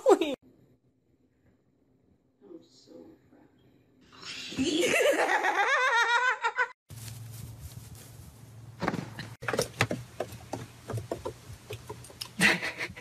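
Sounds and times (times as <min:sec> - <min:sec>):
paws crunching in snow: 0:06.9 - 0:08.5.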